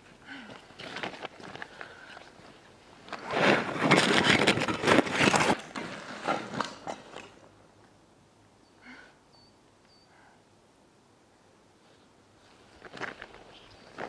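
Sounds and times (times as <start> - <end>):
clothes scraping on rock: 3.0 - 7.3.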